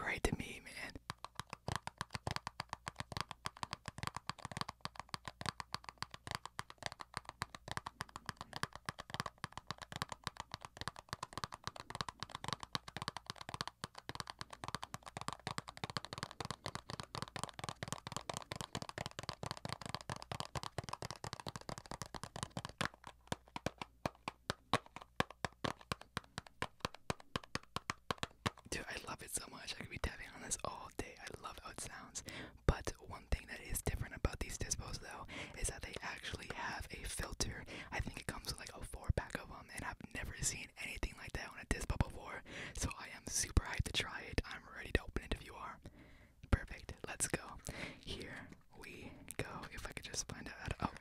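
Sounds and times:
fingers tapping hard object: 1.0s - 32.0s.

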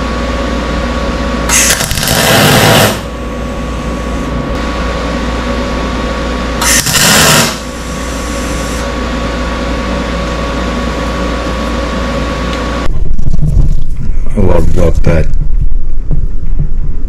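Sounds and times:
steady machine hum: 0.0s - 17.0s
electric arc welding: 1.4s - 5.3s, 6.6s - 9.0s.

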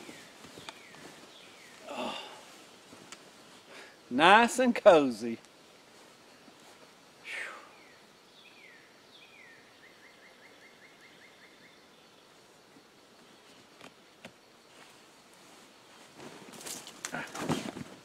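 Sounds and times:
songbird singing: 0.0s - 17.2s
rustle: 0.0s - 18.0s.

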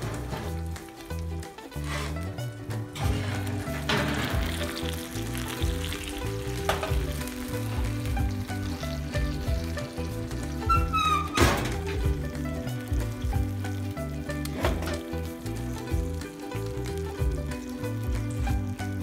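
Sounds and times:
background music with bass line: 0.0s - 19.0s
chicken sizzling in hot fat: 0.0s - 19.0s.

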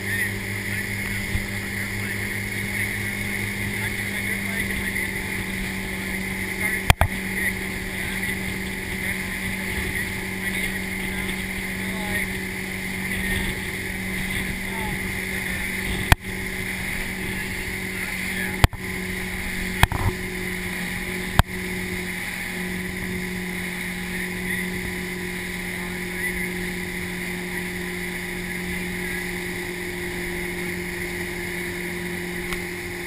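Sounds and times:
motorboat engine humming: 0.0s - 33.0s
rushing water and wake spray: 0.0s - 33.0s
sharp taps: 6.8s - 7.2s.

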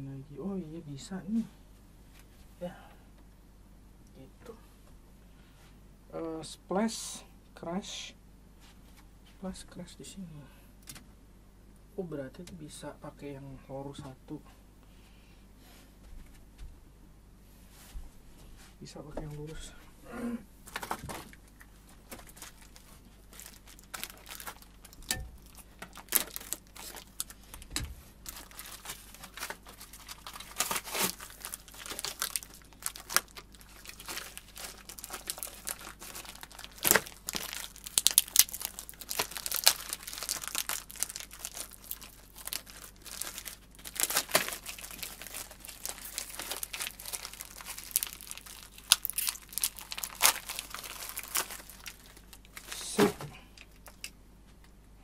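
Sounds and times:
packaging crinkling and tearing: 20.7s - 54.0s.

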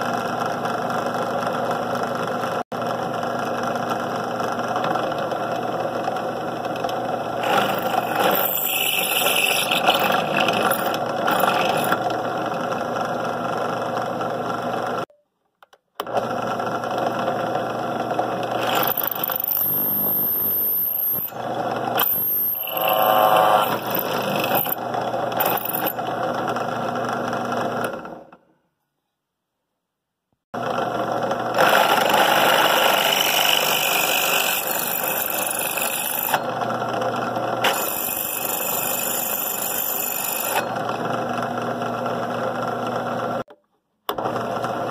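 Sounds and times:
drill press motor running: 2.8s - 15.0s, 16.0s - 28.3s, 30.6s - 43.4s
drill bit squealing on steel: 7.4s - 12.0s, 18.6s - 21.4s, 22.0s - 24.8s, 25.4s - 26.0s, 37.6s - 40.8s.

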